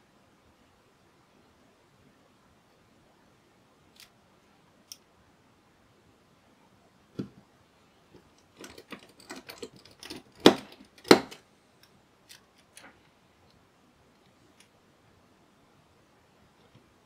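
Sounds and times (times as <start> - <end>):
screwdriver clicks and taps: 8.6 - 12.8
knocks of fan assembly handled: 10.3 - 11.4.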